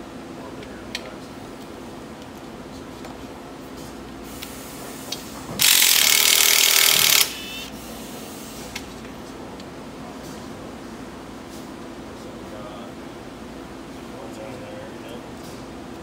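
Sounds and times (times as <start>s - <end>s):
workshop tool hissing burst: 4.3s - 8.7s.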